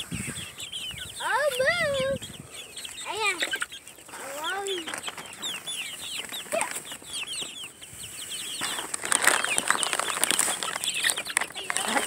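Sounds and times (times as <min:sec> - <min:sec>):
chicks peeping: 0:00.0 - 0:12.0
wings flapping and rustling: 0:03.2 - 0:12.0.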